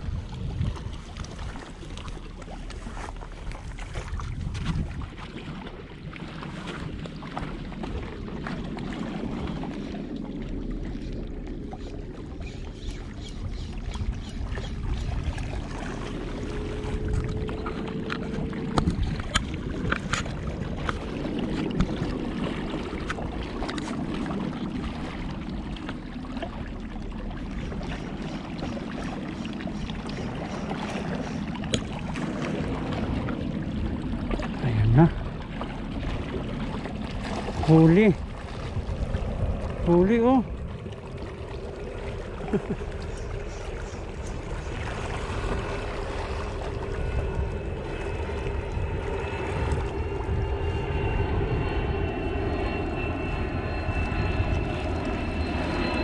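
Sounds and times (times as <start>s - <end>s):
wind on microphone: 0.0s - 56.0s.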